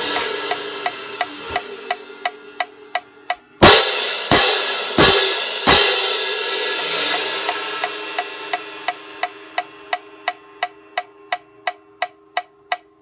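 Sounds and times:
metronome clicking: 0.0s - 6.2s, 7.0s - 13.0s
crash cymbals struck: 0.0s - 12.0s.

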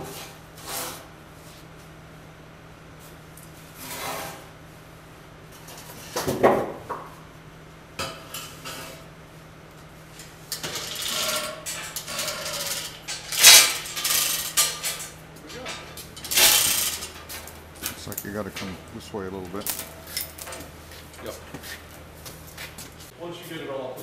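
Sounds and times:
heavy metal parts clanking: 10.5s - 21.5s.

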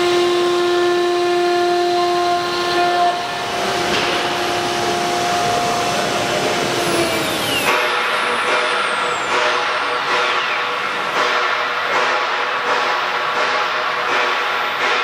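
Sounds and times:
wood router spindle whine: 2.4s - 10.0s
wood cutting hiss: 3.3s - 10.2s.

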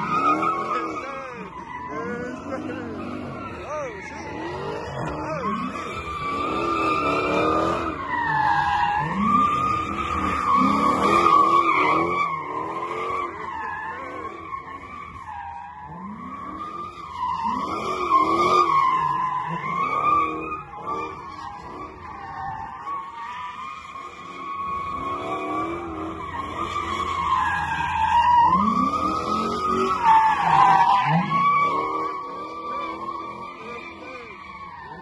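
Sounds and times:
car engine revving: 0.0s - 35.0s
tyres squealing: 0.0s - 35.0s.

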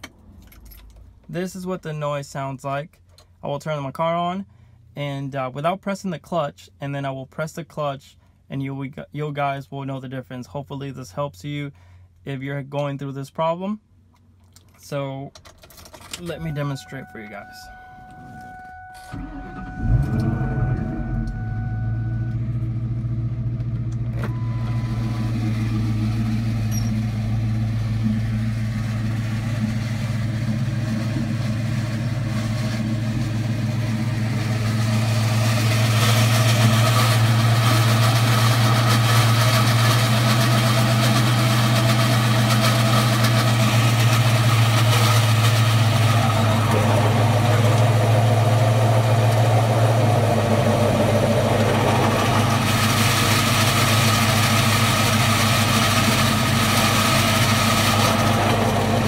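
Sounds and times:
car engine idling: 16.2s - 59.0s.

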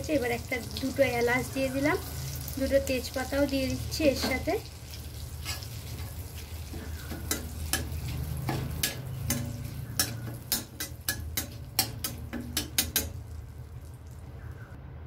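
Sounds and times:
faint sizzle: 0.0s - 14.8s
metal spatula scraping a pan: 4.0s - 13.3s.

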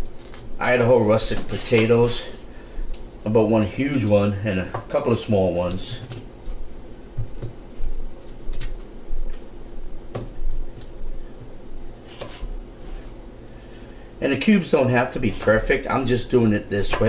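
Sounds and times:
knife cutting potatoes on a board: 12.0s - 13.0s.

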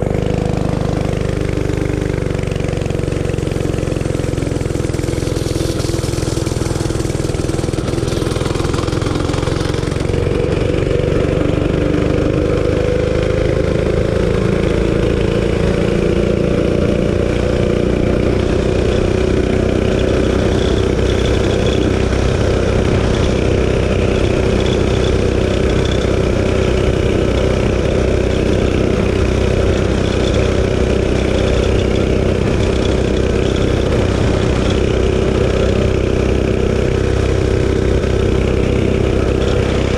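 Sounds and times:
mini bike engine running hard: 0.0s - 39.9s
wind rumble on microphone: 4.7s - 39.9s.

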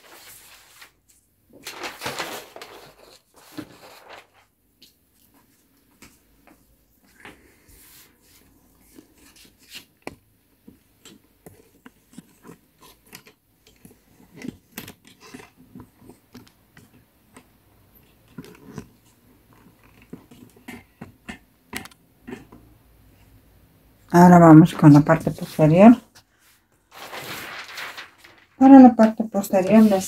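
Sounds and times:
paper sheets crackling: 0.0s - 4.5s, 26.9s - 30.0s.

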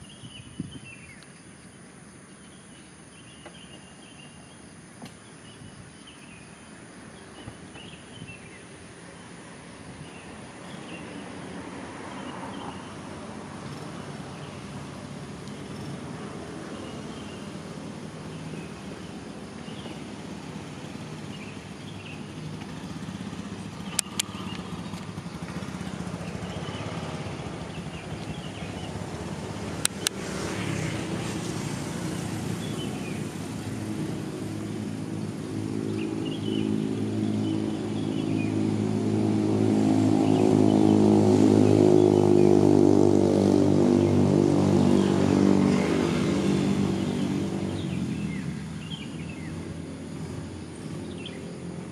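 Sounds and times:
vehicle engine running: 12.9s - 51.9s
sharp double click: 23.9s - 24.4s, 29.8s - 30.2s.

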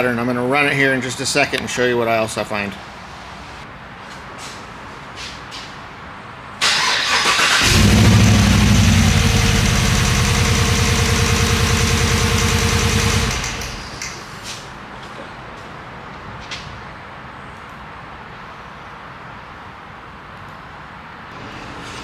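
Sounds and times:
car engine turning over and running: 6.6s - 14.2s.

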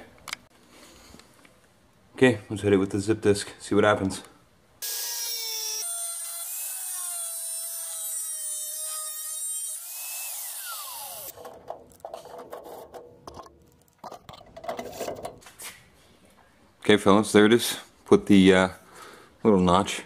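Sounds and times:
angle grinder motor whine: 8.8s - 11.3s.

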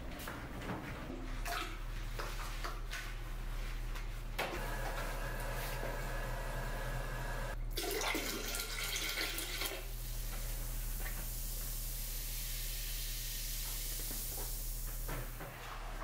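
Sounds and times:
liquid splashing into toilet water: 7.7s - 9.9s.

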